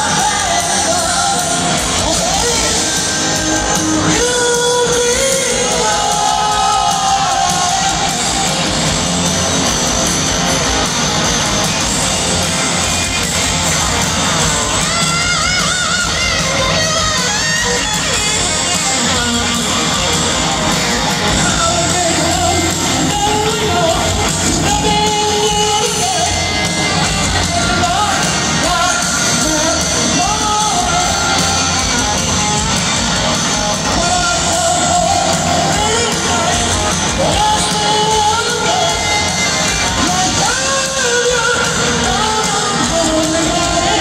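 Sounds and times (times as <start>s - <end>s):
person singing: 0.0s - 8.7s, 21.1s - 32.7s, 33.7s - 44.0s
bass and drums: 0.0s - 44.0s
crowd yelling: 0.0s - 44.0s
electric guitars: 0.0s - 44.0s.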